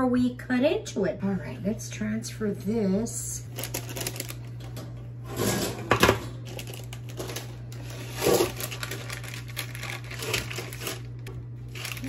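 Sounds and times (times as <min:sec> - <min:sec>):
parchment paper crinkling: 0:03.5 - 0:04.6, 0:06.4 - 0:12.0.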